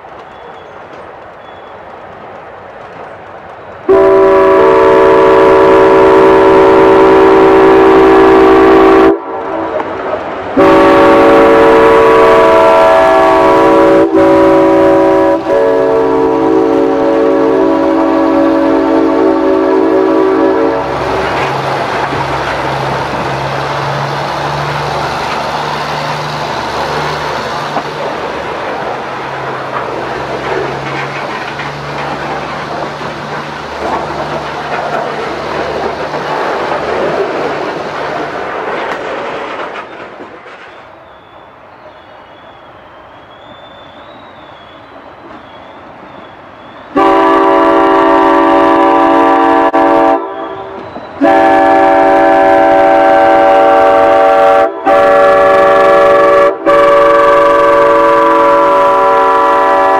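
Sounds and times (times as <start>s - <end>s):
train wheels rumbling on rails: 0.0s - 59.9s
locomotive air horn blasts: 3.9s - 9.7s, 10.6s - 21.2s, 46.9s - 59.9s.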